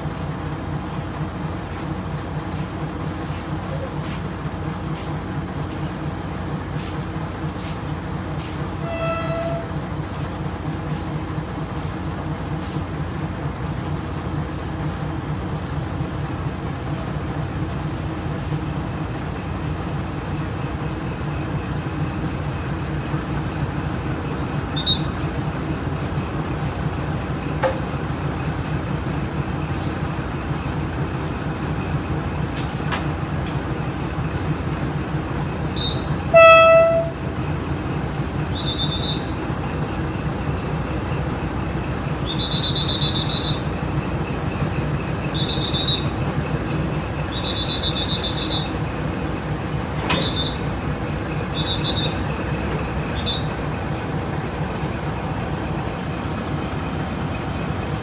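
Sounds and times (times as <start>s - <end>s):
diesel train engine rumbling: 0.0s - 58.0s
train horn toot: 8.8s - 9.8s, 35.8s - 37.2s.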